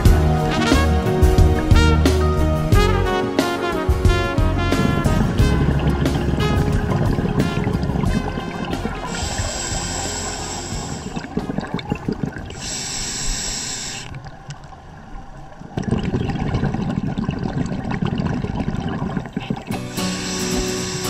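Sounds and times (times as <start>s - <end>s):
exhaled bubbles rumbling: 4.1s - 21.0s
regulator hissing inhalations: 9.0s - 11.4s, 12.5s - 14.2s, 19.8s - 21.0s.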